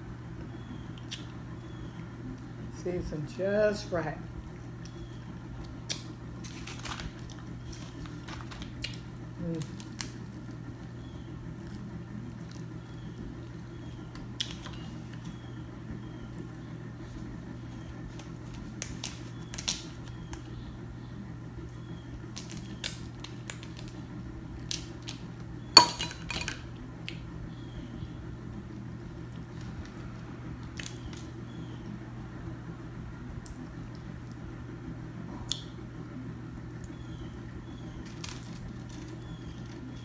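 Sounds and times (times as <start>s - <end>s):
steady low hum: 0.0s - 40.0s
crab shells cracking: 5.6s - 10.6s, 22.3s - 24.0s, 24.6s - 27.2s, 38.0s - 40.0s.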